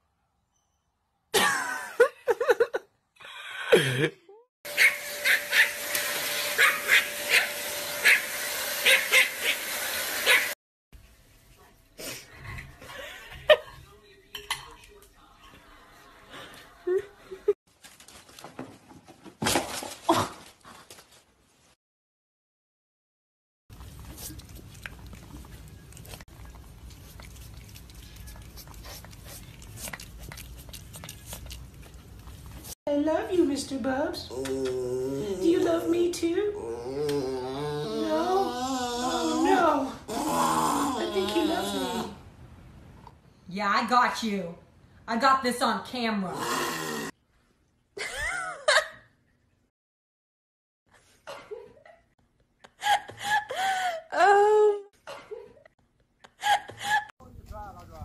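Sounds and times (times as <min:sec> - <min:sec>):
cat sniffing: 0:26.8 - 0:32.5
dog whining: 0:36.6 - 0:42.2.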